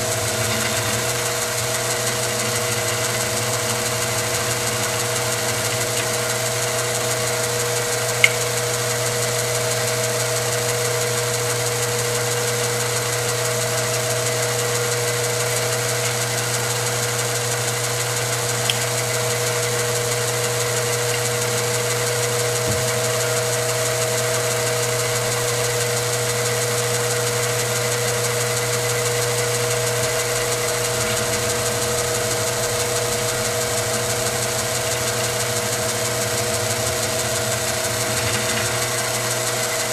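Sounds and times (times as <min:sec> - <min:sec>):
milling machine drone: 0:00.0 - 0:39.9
sharp ticks: 0:08.0 - 0:08.6.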